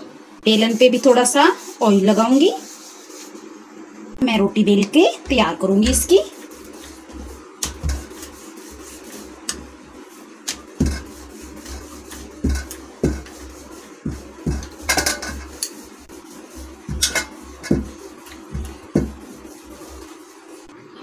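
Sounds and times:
rolling pin rumbling on dough: 5.2 - 20.7.

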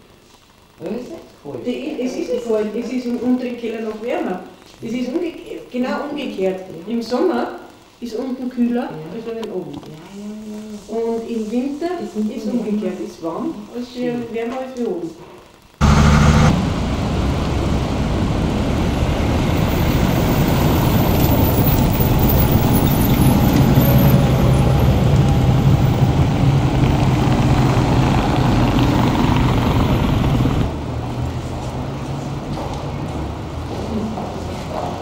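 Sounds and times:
city car traffic: 15.8 - 35.0.

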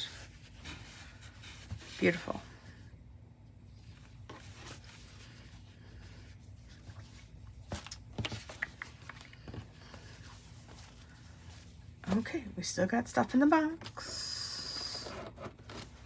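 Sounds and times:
fabric brushing and rustling: 3.5 - 8.6, 9.4 - 12.3.

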